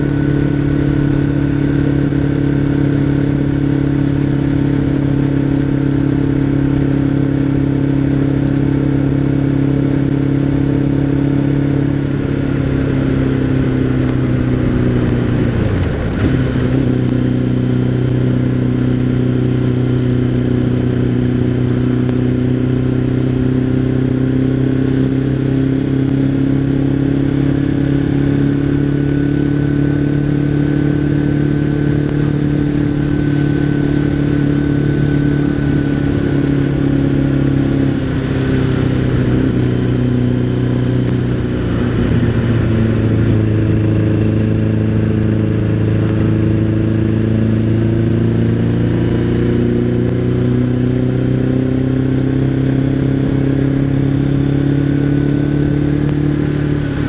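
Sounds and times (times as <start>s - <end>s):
motorcycle engine running: 0.0s - 57.0s
tyres on wet road: 0.0s - 57.0s
wind noise: 11.9s - 18.9s.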